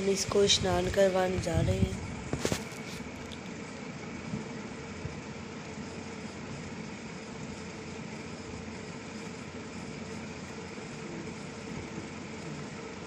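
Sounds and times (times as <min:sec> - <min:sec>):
electric fan whirring: 0:00.0 - 0:13.0.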